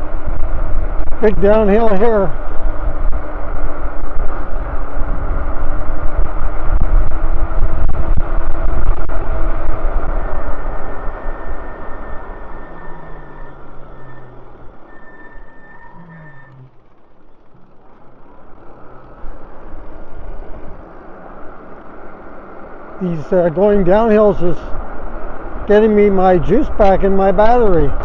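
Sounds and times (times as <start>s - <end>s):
wind rushing over microphone: 0.0s - 14.9s, 17.8s - 28.0s
tyre noise on asphalt: 0.0s - 26.2s.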